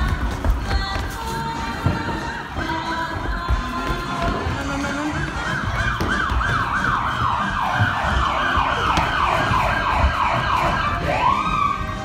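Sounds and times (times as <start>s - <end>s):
siren yelping: 5.2s - 12.0s.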